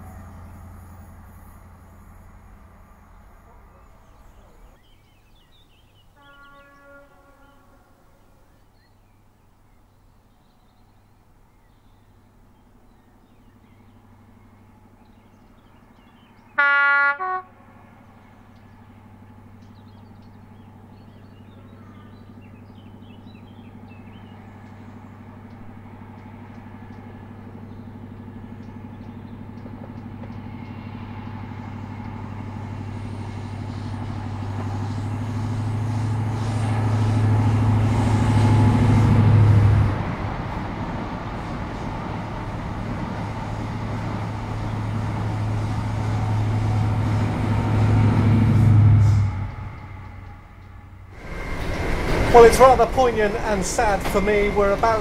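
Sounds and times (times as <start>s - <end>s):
diesel engine drone: 0.0s - 5.8s, 12.3s - 55.0s
train two-tone horn: 6.1s - 8.4s, 16.6s - 17.7s, 45.3s - 50.9s.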